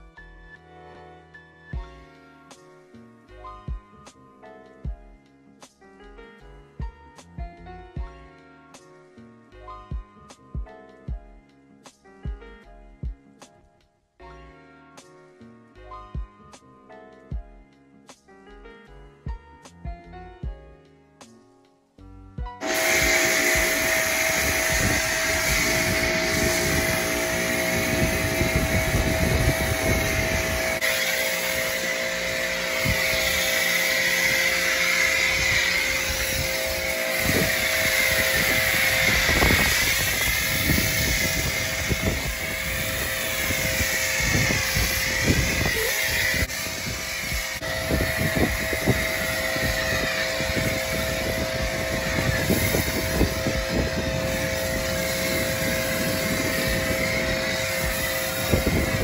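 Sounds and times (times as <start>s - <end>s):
foam spraying: 22.6s - 59.0s
pressure washer whine: 22.6s - 59.0s.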